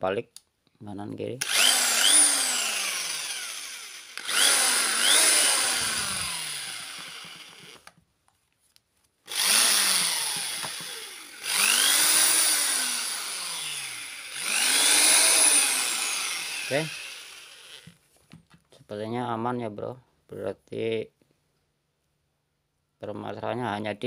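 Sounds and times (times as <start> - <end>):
electric drill motor whining: 1.4 - 8.0, 9.3 - 18.0.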